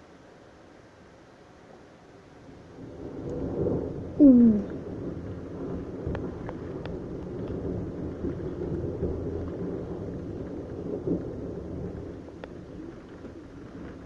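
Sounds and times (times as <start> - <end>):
heavy rain: 0.0 - 14.0
raindrops ticking on window glass: 4.6 - 14.0.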